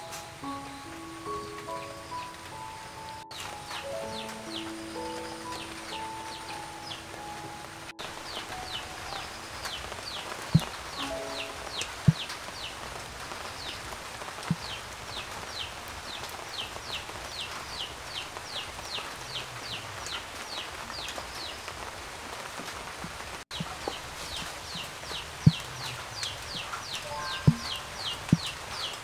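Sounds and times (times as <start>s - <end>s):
steady hiss: 0.0s - 29.0s
high falling chirp: 0.4s - 12.8s, 26.9s - 29.0s.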